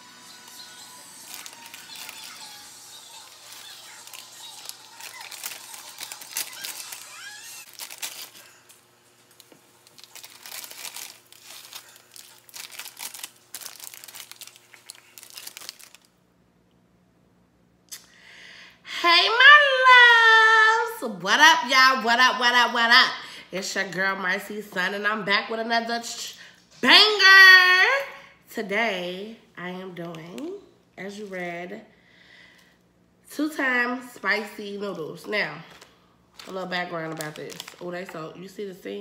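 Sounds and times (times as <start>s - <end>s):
plastic packets crinkling and tearing: 0.4s - 16.2s, 35.6s - 38.4s.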